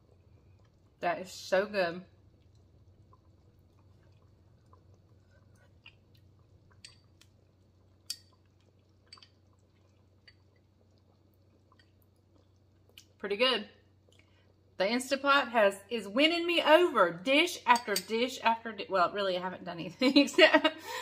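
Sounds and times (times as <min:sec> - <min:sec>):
quiet chewing: 0:00.1 - 0:01.0, 0:02.2 - 0:13.2, 0:14.0 - 0:14.6.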